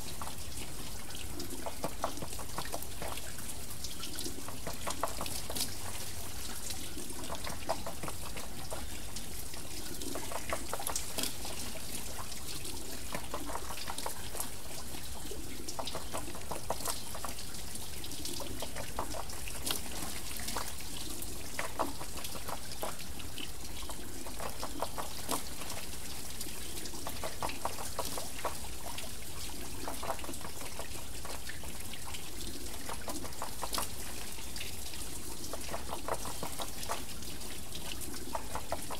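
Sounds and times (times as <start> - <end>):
water pouring and trickling: 0.0 - 38.9
water splashes: 0.0 - 38.9
water wheel turning: 0.0 - 38.9.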